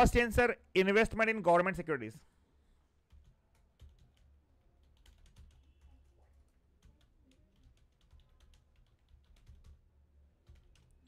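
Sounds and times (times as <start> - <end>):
faint keyboard typing: 2.9 - 11.0.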